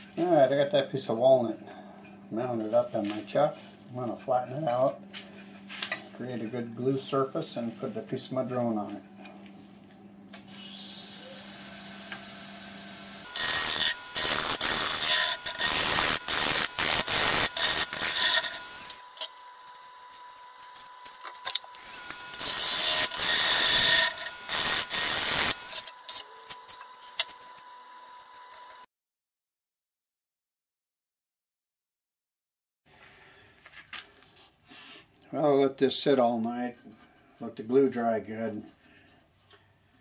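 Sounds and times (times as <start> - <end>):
lathe tool cutting hiss: 10.4 - 19.0, 21.7 - 25.8
lathe high whine: 10.4 - 28.8.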